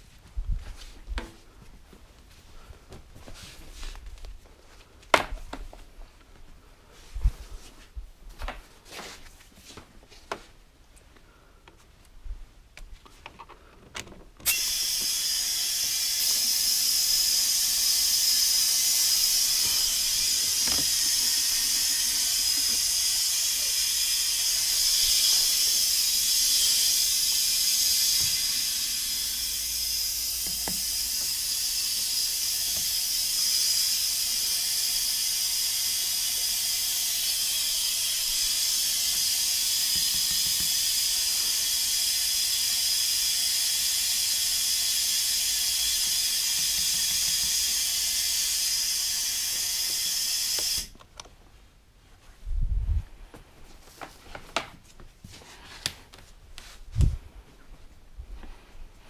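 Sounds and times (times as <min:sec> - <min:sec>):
loud steady hiss: 0:14.4 - 0:50.9.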